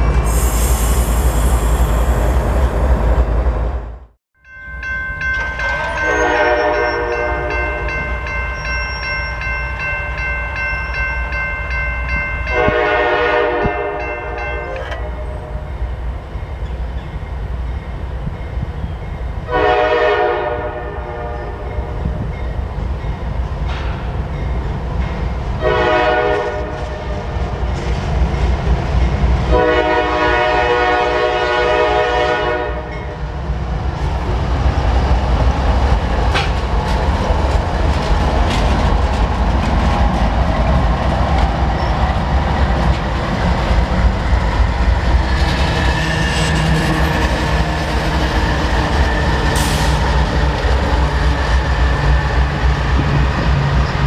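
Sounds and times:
diesel locomotives rumbling: 0:00.0 - 0:54.0
locomotive horn blasts: 0:05.9 - 0:08.0, 0:12.5 - 0:15.7, 0:19.5 - 0:21.8, 0:25.6 - 0:27.1, 0:29.5 - 0:33.0.

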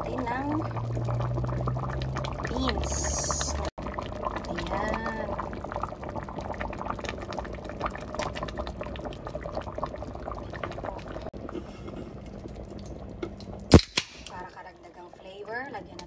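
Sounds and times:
stew bubbles popping: 0:00.0 - 0:13.8.

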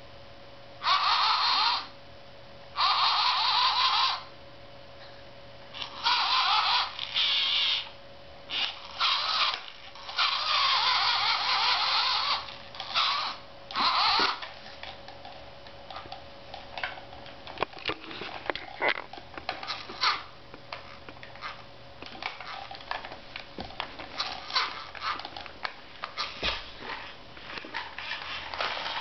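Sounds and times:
toy electric motor whirring: 0:00.8 - 0:01.9, 0:02.8 - 0:04.3, 0:05.8 - 0:14.6, 0:19.5 - 0:23.1, 0:23.7 - 0:27.1, 0:27.7 - 0:29.0.

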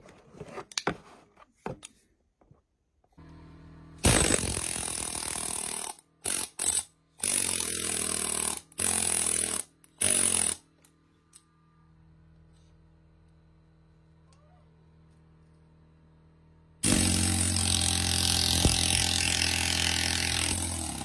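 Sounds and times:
air hammer chiselling: 0:16.8 - 0:21.0.

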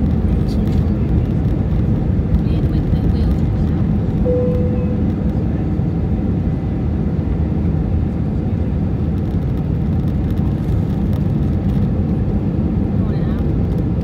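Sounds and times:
jet engine and airflow rumble: 0:00.0 - 0:14.0
short steady tone: 0:04.2 - 0:05.2.

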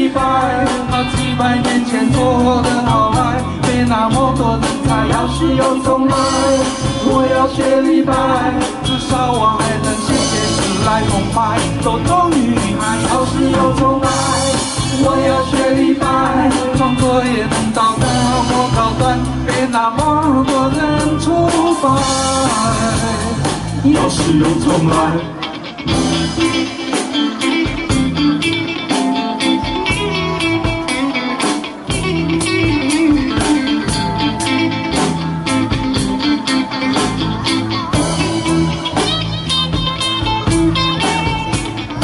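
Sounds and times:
man singing into a microphone: 0:00.0 - 0:25.6
backing music with drums and bass: 0:00.0 - 0:42.0.

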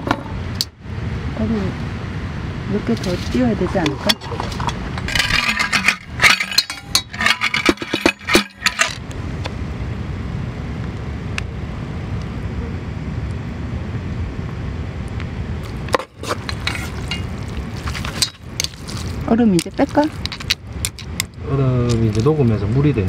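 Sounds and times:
ice and utensils clinking on pot: 0:03.0 - 0:09.0, 0:15.6 - 0:22.3.

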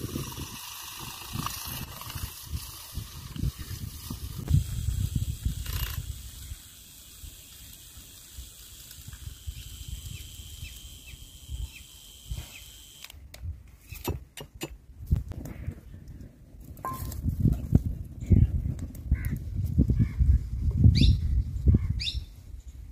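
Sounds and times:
handheld frother whirring: 0:00.0 - 0:13.2.

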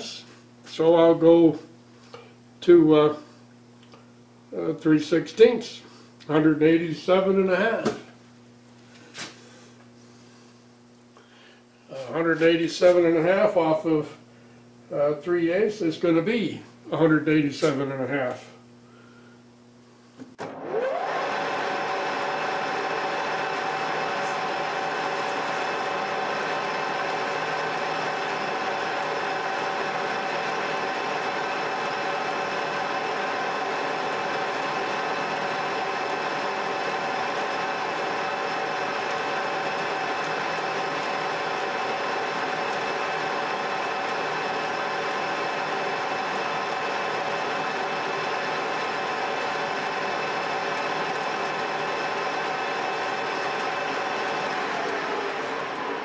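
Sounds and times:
metal lathe whining: 0:20.4 - 0:56.0.

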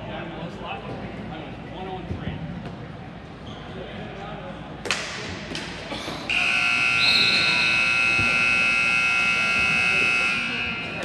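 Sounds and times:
scoreboard buzzer blare: 0:06.3 - 0:11.0.

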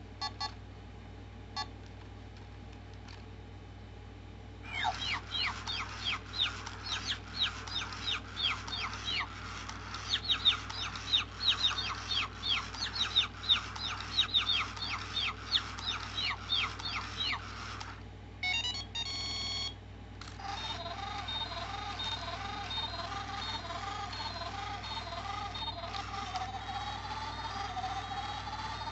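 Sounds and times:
robot bird whistle-like chirps: 0:04.7 - 0:09.3, 0:10.0 - 0:17.4.

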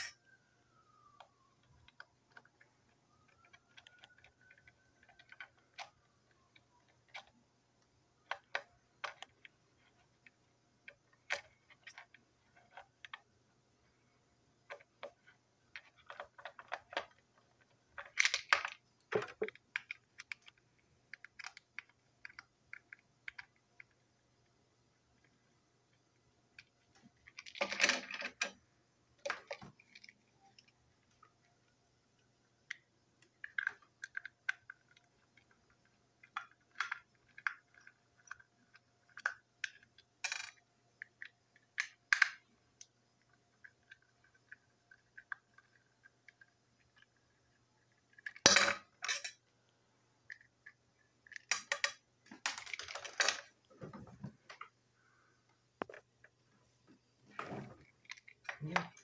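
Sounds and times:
plastic parts clicking and scraping: 0:01.2 - 0:07.4, 0:08.2 - 0:13.3, 0:14.6 - 0:24.0, 0:25.2 - 0:28.6, 0:29.2 - 0:31.5, 0:32.6 - 0:49.4, 0:50.2 - 0:54.8, 0:57.3 - 0:59.0
plastic parts clattering: 0:14.7 - 0:23.5, 0:27.0 - 0:28.6, 0:51.2 - 0:54.7.

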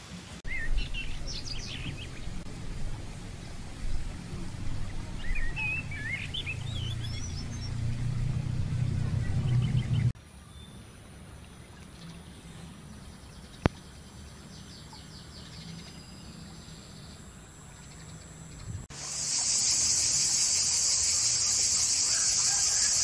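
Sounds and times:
steady high-pitched whine: 0:00.0 - 0:11.4, 0:16.2 - 0:23.0
bird chirping: 0:00.4 - 0:10.9
low rumble: 0:00.5 - 0:10.2
insect trills: 0:17.0 - 0:23.0.

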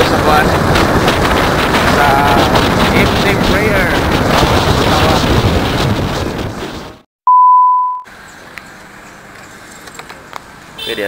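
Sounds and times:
motorcycle moving: 0:00.0 - 0:07.1, 0:08.1 - 0:11.0
wind buffeting microphone: 0:00.0 - 0:07.1
electronic beep: 0:07.3 - 0:08.1.

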